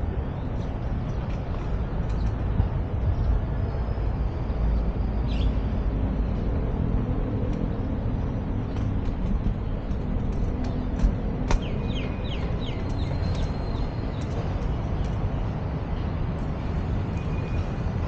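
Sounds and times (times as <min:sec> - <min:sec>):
distant city traffic rumble: 0:00.0 - 0:18.0.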